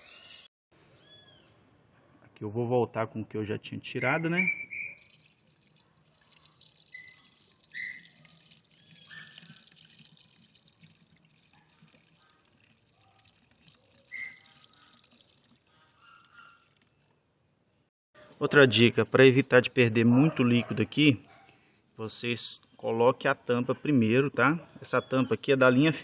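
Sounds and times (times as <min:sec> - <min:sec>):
liquid trickling into reservoir: 0:04.8 - 0:17.1.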